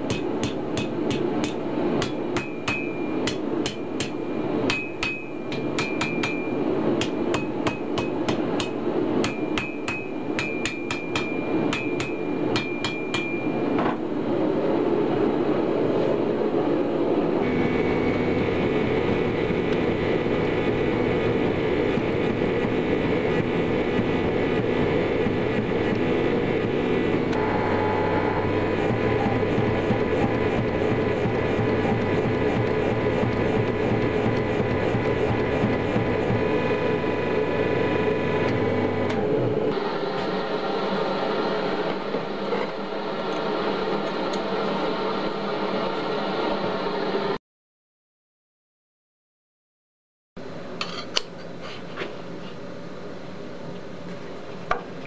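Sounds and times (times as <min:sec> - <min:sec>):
hammer ringing on anvil: 0:00.1 - 0:13.8
forge roaring: 0:17.3 - 0:43.9.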